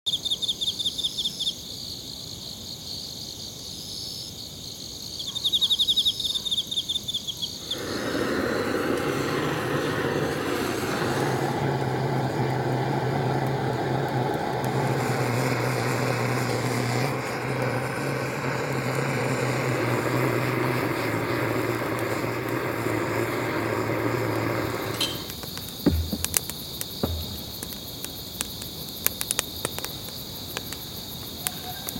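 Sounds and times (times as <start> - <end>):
crickets chirping: 0.1 - 31.9
butane torch hissing flame: 7.6 - 31.9.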